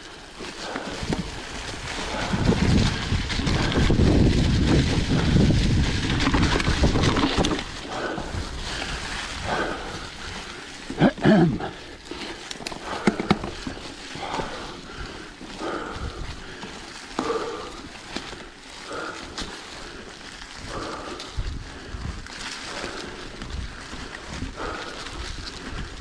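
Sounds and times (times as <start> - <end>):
bike rattling: 0.0 - 26.0
tyres crackling through leaves: 0.0 - 26.0
wind on microphone: 0.7 - 10.6, 20.6 - 26.0.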